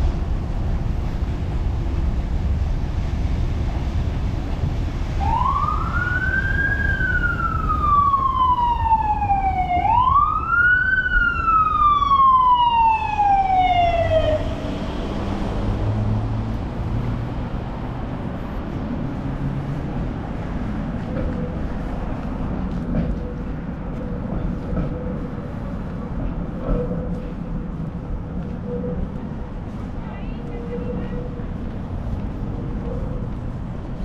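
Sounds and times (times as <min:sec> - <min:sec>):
street traffic rumble: 0:00.0 - 0:34.0
emergency vehicle siren wailing: 0:05.1 - 0:17.4.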